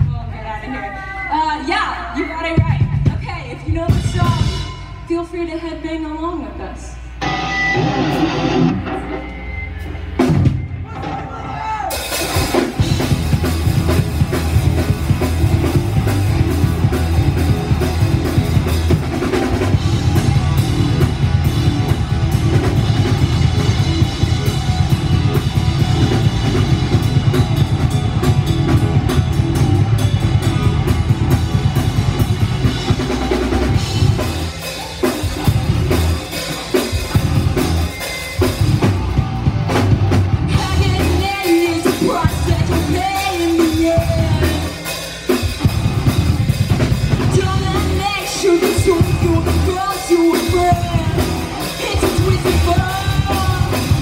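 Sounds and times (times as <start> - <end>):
bass guitar: 0.0 - 5.3, 7.0 - 54.0
electric guitar: 7.0 - 11.2, 11.9 - 54.0
bass drum beats: 12.2 - 44.8, 45.5 - 54.0.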